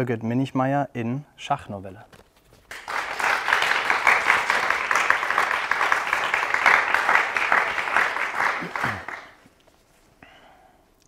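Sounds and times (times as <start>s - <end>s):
hands clapping: 2.7s - 9.5s.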